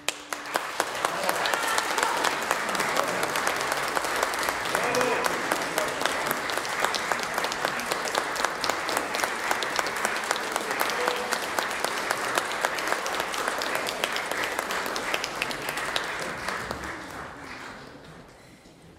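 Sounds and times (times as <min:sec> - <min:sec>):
audience applauding: 0:00.0 - 0:18.4.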